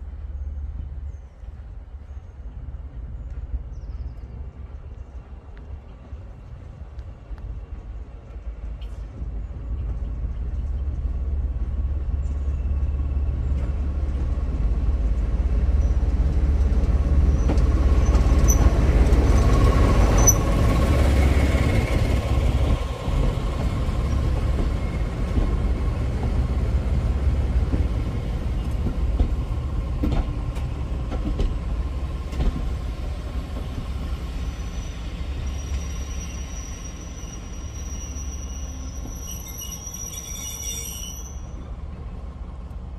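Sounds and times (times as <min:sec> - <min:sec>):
coaches rolling along rails: 0:00.0 - 0:42.9
diesel locomotive engine passing: 0:00.0 - 0:42.9
thin high squeal: 0:34.6 - 0:41.6.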